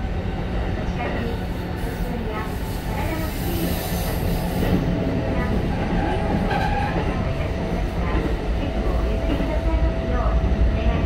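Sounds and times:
train wheel-on-rail rumble: 0:00.0 - 0:11.0.

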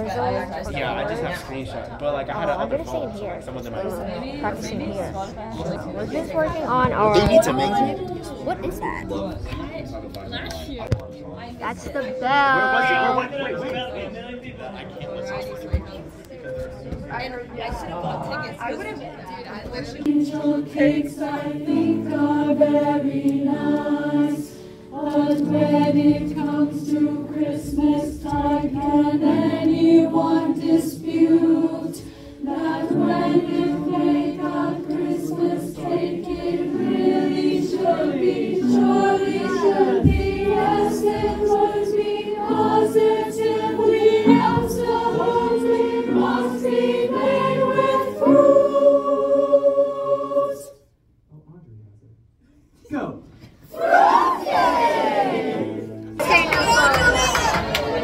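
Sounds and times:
choir singing: 0:00.0 - 0:01.7, 0:03.5 - 0:09.6, 0:11.6 - 0:14.4, 0:19.6 - 0:51.0, 0:53.6 - 0:58.0.

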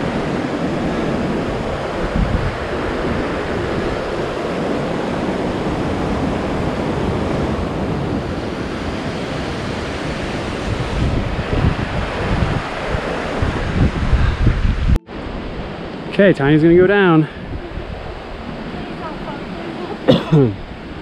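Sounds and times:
creek rapids rushing: 0:00.0 - 0:14.1
wind buffeting microphone: 0:00.0 - 0:21.0.

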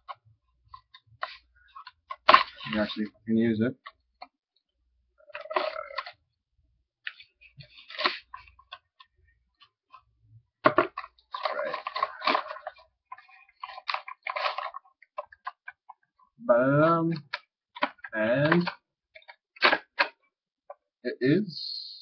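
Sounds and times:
packaging rustling and crinkling: 0:10.8 - 0:15.6.

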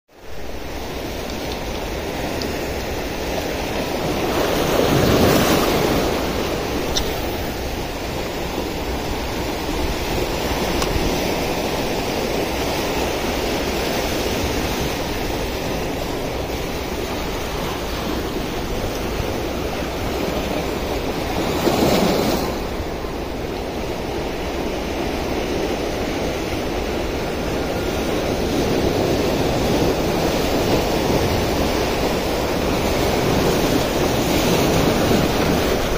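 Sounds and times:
surf washing over rocks: 0:00.1 - 0:35.9
waves breaking: 0:00.1 - 0:35.9.

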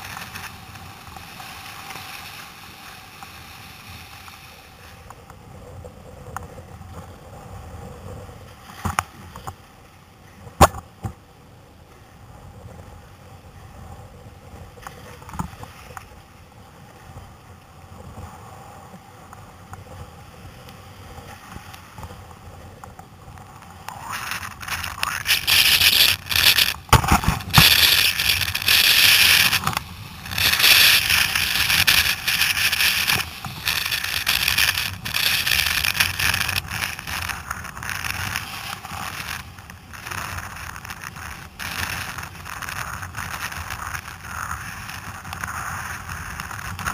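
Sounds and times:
surf rushing and splashing: 0:00.0 - 0:05.1, 0:19.9 - 0:46.9.

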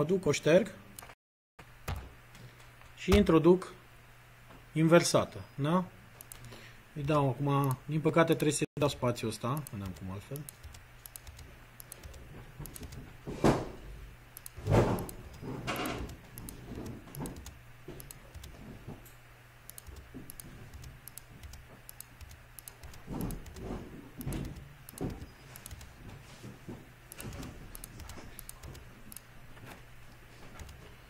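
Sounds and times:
keyboard key clicks: 0:09.6 - 0:13.0, 0:19.7 - 0:23.6, 0:24.2 - 0:25.9, 0:27.1 - 0:29.2, 0:30.6 - 0:30.8.

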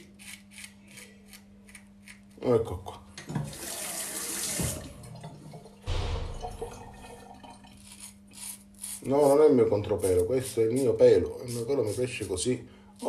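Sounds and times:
tap water running into sink: 0:03.3 - 0:07.8.

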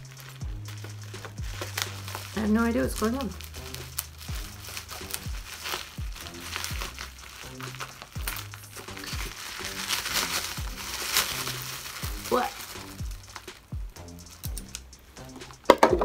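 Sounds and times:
background music with beat: 0:00.0 - 0:16.0
bubble wrap crinkling: 0:00.0 - 0:16.0
scissors cutting: 0:14.3 - 0:14.9.

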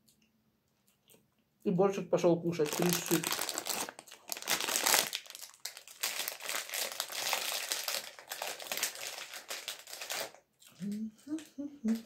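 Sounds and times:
plastic bag crinkling: 0:02.5 - 0:12.0.

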